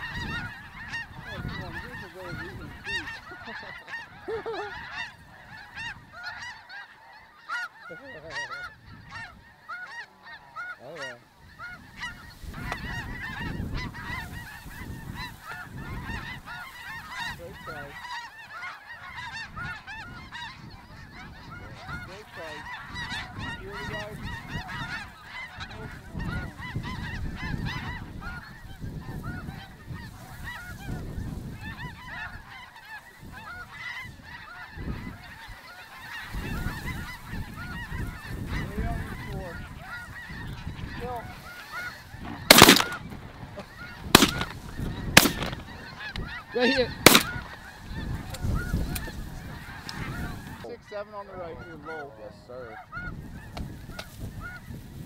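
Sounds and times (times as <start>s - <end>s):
geese honking: 0.0s - 55.0s.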